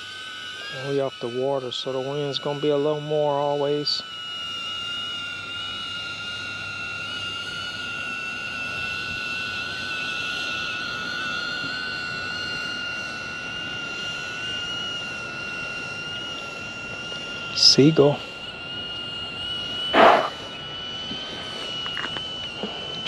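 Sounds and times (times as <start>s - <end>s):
drone propellers whining: 0.0s - 23.0s.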